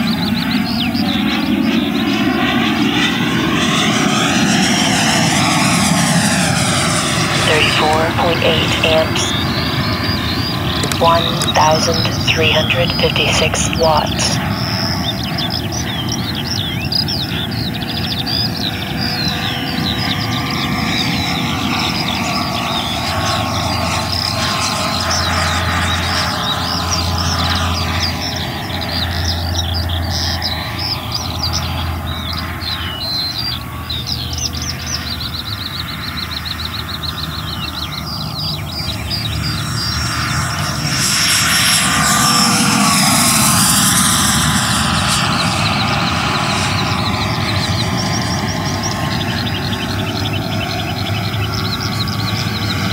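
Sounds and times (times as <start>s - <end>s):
birds chirping: 0.0s - 5.7s, 7.0s - 44.4s, 45.2s - 52.9s.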